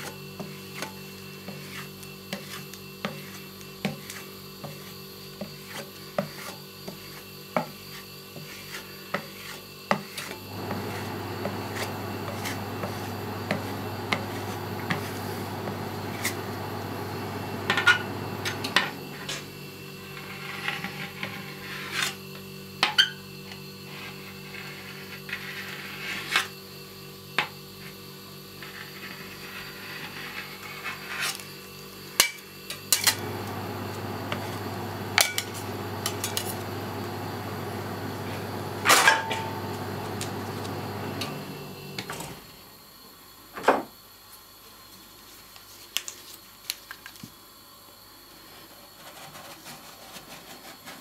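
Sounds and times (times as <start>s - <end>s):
refrigeration unit humming: 10.4s - 20.1s, 32.9s - 43.1s.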